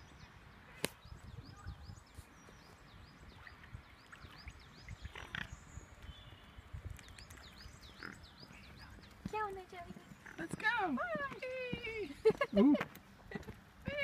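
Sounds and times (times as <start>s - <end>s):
low wind rumble: 0.0s - 14.0s.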